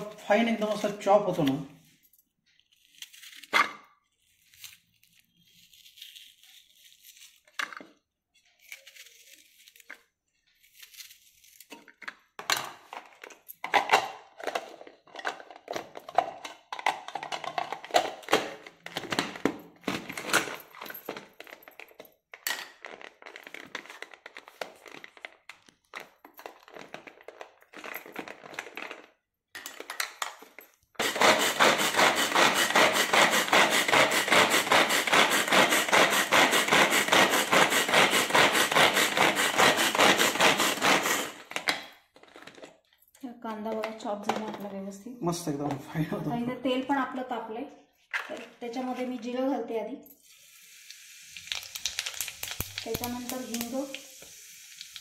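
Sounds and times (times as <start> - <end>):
knife cutting onion: 31.0 - 41.4
vegetable chopper rasping rattle: 31.0 - 41.4.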